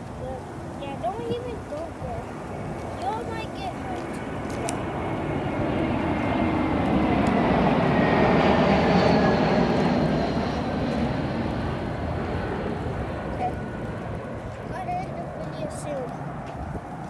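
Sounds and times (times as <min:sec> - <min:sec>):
airplane passing overhead: 0:00.0 - 0:17.0.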